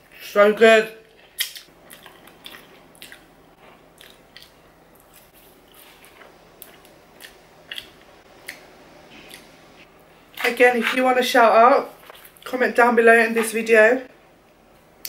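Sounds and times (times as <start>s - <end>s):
close chewing: 1.4s - 9.6s.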